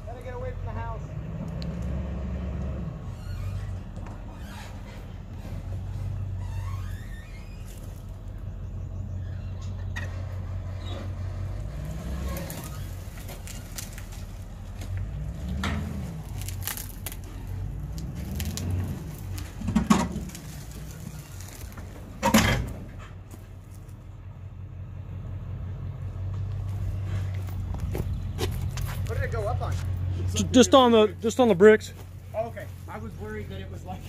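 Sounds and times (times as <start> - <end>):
engine revving: 0.4 - 6.2, 9.6 - 21.8.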